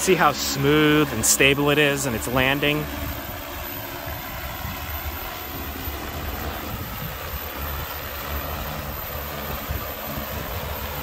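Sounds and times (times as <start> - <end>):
drone propellers whirring: 0.0 - 11.0.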